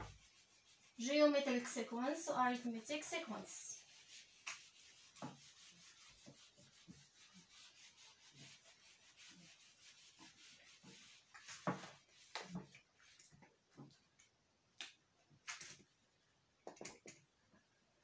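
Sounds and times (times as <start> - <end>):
eraser wiping whiteboard: 0.0 - 13.2.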